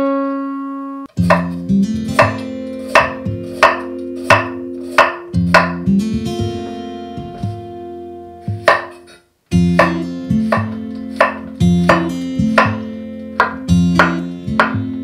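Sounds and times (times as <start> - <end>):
plucked guitar music: 0.8 - 15.0
knife slicing onto wooden board: 9.8 - 12.0.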